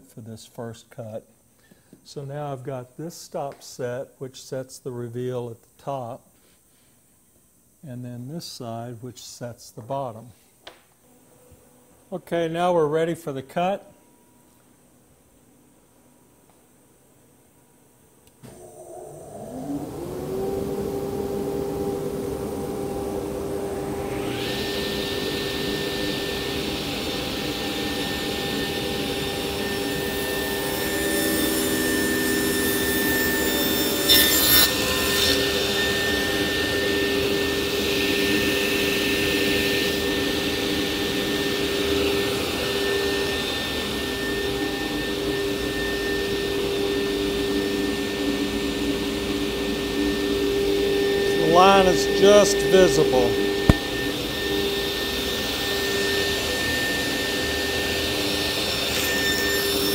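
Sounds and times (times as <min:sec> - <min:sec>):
table saw running: 0:18.5 - 0:59.9
rushing dust extraction: 0:51.2 - 0:54.5.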